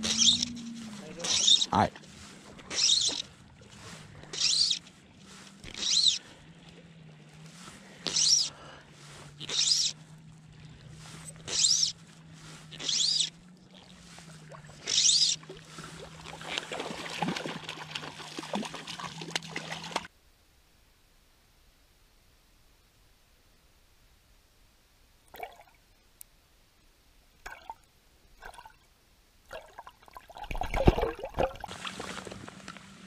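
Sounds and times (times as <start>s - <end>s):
fly line zipping: 0.0s - 1.8s, 2.6s - 3.3s, 4.3s - 4.8s, 5.6s - 6.2s, 8.0s - 8.5s, 9.4s - 10.0s, 11.4s - 12.0s, 12.7s - 13.3s, 14.8s - 15.4s
fish splashing in water: 9.4s - 20.1s, 29.5s - 33.0s.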